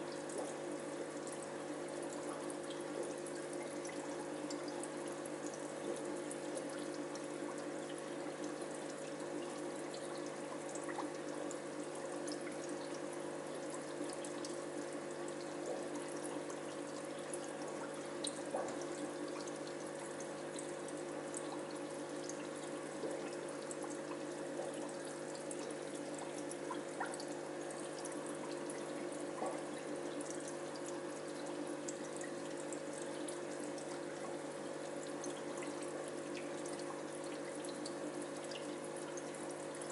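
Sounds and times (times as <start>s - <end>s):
aquarium water trickling: 0.0s - 39.9s
faint drip-like ticks: 0.0s - 39.9s.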